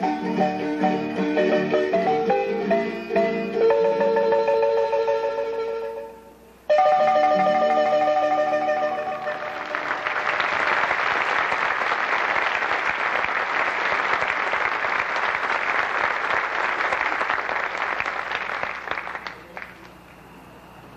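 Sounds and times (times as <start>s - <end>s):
audience applause: 9.2s - 20.2s.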